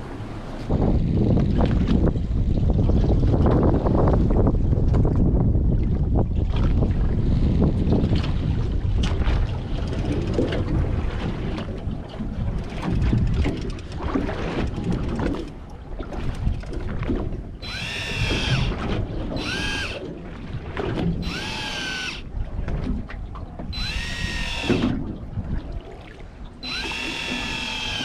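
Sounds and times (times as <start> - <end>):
wind on microphone: 0.6 - 28.0
sea noise: 17.0 - 22.6, 23.5 - 28.0
electric fishing reel motor whining: 17.6 - 20.0, 21.2 - 22.3, 23.7 - 25.0, 26.6 - 28.0.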